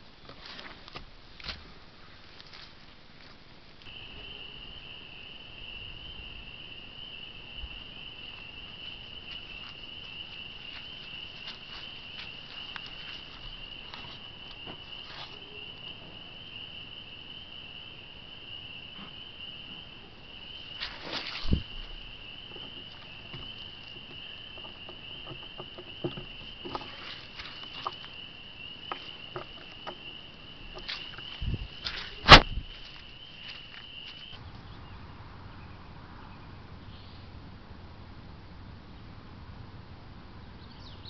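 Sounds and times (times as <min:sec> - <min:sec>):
faint ticks and rustles: 0:00.0 - 0:03.9, 0:09.2 - 0:15.9, 0:20.6 - 0:34.7.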